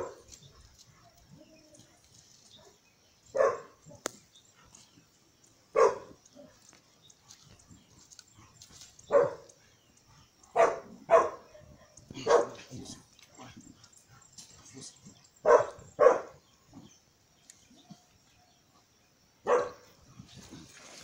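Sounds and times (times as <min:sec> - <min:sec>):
dog barking: 0:02.6 - 0:04.1, 0:05.7 - 0:06.6, 0:09.1 - 0:09.5, 0:10.5 - 0:12.7, 0:15.4 - 0:16.4, 0:19.4 - 0:19.9.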